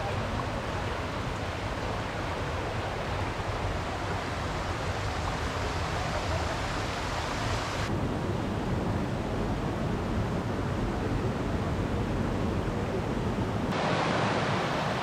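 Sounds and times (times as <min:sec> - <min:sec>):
flowing water rushing: 0:00.0 - 0:07.9, 0:13.7 - 0:15.0.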